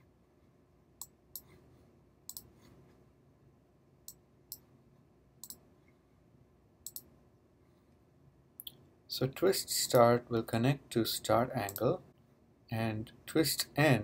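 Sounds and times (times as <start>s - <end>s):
faint room hiss: 0.0s - 14.0s
computer mouse buttons clicking: 2.3s - 2.5s, 5.4s - 5.6s, 6.8s - 7.1s.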